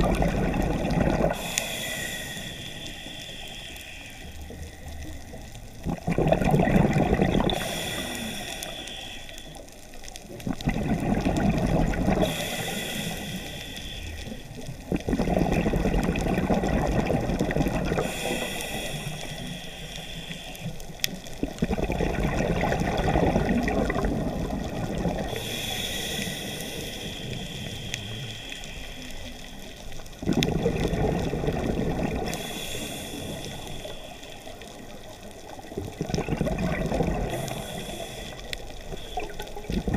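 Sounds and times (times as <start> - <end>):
exhaled bubbles rushing: 0.0 - 1.5, 5.7 - 7.8, 10.3 - 12.4, 14.7 - 18.1, 21.4 - 25.4, 30.2 - 32.4, 35.3 - 37.5, 38.8 - 39.9
air hissing through regulator: 1.3 - 4.5, 7.6 - 9.6, 12.2 - 14.5, 18.0 - 20.9, 25.3 - 29.9, 32.2 - 34.5, 37.3 - 39.6.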